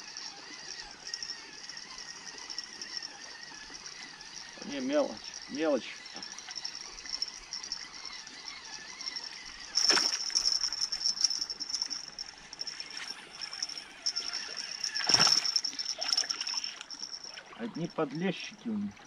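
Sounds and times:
high chirring: 0:00.0 - 0:18.2
fish splashing at surface: 0:09.8 - 0:10.5, 0:14.4 - 0:17.6.

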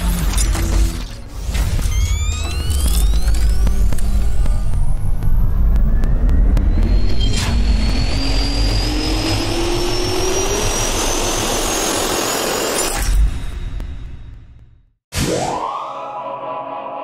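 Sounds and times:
jet engine spooling up: 0:02.1 - 0:12.8.

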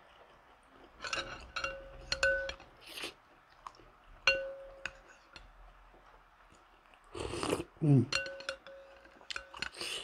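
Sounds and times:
spoon clinking against ceramic bowl: 0:01.0 - 0:02.7, 0:04.2 - 0:05.5, 0:08.1 - 0:09.8.

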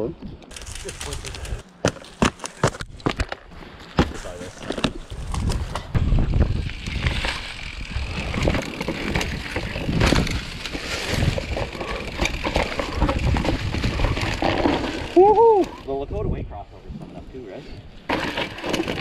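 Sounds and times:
bike tyres rolling over dirt: 0:00.5 - 0:16.1, 0:18.0 - 0:19.0
bike frame clattering: 0:04.0 - 0:15.8
wind buffeting microphone: 0:05.0 - 0:18.0.

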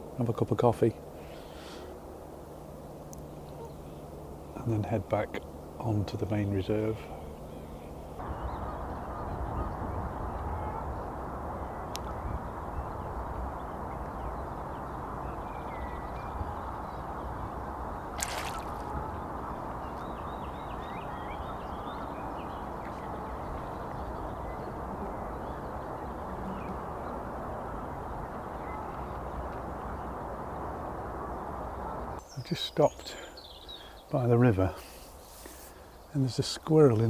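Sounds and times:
small birds chattering: 0:11.8 - 0:37.0.

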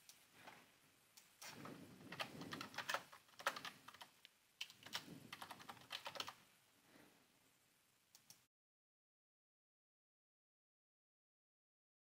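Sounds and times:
faint keyboard typing: 0:01.2 - 0:06.4, 0:08.1 - 0:08.5.

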